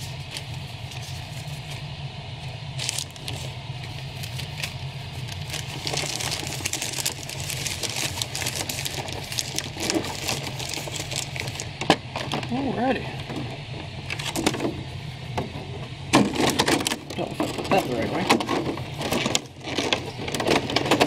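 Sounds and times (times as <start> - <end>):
plastic bags crinkling: 2.7 - 12.6, 16.2 - 21.0.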